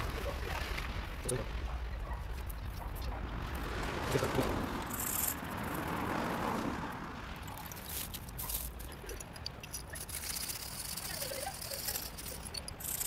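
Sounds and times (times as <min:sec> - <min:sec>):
low traffic rumble: 0:00.0 - 0:13.0
vehicle passing: 0:03.1 - 0:08.4.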